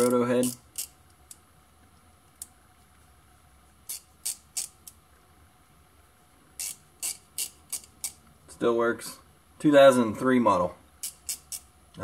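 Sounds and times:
ratchet clicking: 0.0 - 1.4, 3.9 - 5.0, 6.6 - 8.2, 11.0 - 11.7.

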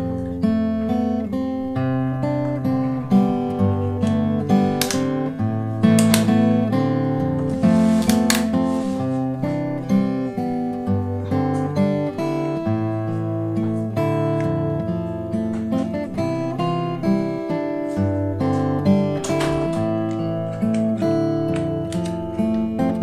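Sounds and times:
acoustic guitar playing: 0.0 - 23.0.

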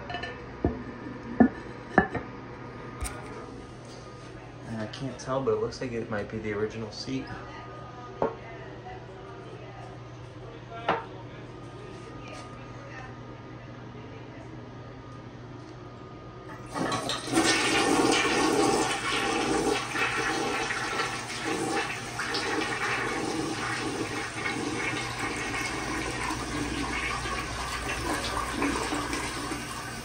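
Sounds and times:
toilet flushing: 16.5 - 30.0
water running: 16.5 - 30.0.

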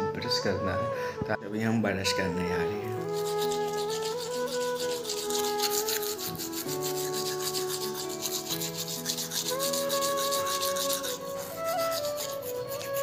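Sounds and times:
music with long held notes: 0.0 - 13.0
toothbrush scrubbing teeth: 2.9 - 13.0.

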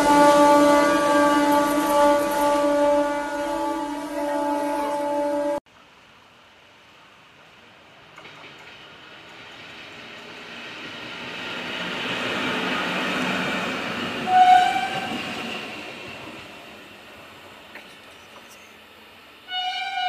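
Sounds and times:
locomotive wheels rumbling on rail: 0.0 - 5.6, 7.0 - 20.0
train horn blast: 0.0 - 5.6, 14.2 - 15.5, 19.5 - 20.0.

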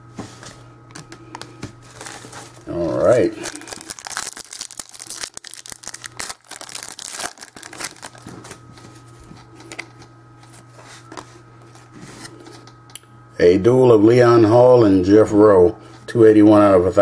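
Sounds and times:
cards rustling: 1.4 - 12.6
wrapper crinkling: 1.8 - 8.7.

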